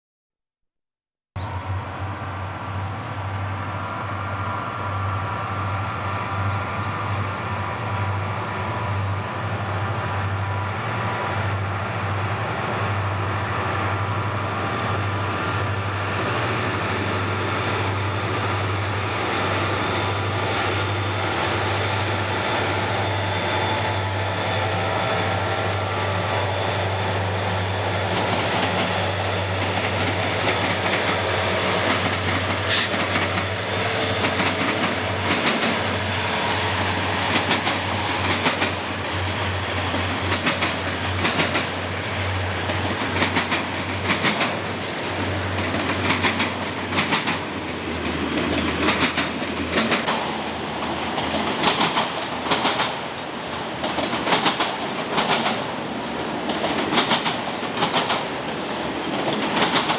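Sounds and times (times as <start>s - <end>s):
diesel locomotive engines rumbling: 1.4s - 59.9s
train wheels clattering: 15.4s - 59.9s.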